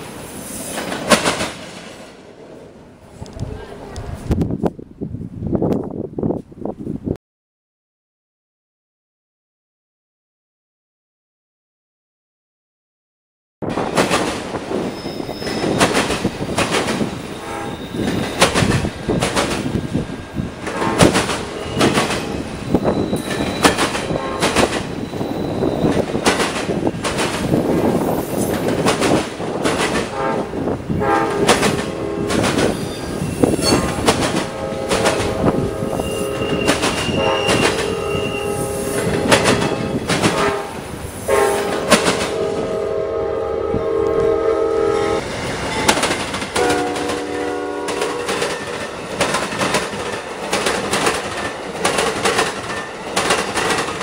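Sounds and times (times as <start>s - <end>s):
train wheels clicking over rail joints: 0.0s - 2.1s, 13.7s - 30.2s, 31.3s - 35.6s, 36.3s - 38.0s, 38.9s - 40.9s, 41.6s - 42.5s, 45.3s - 54.0s
train air horn blasts: 17.3s - 18.2s, 20.7s - 22.4s, 24.0s - 24.8s, 30.0s - 45.2s, 46.6s - 48.6s.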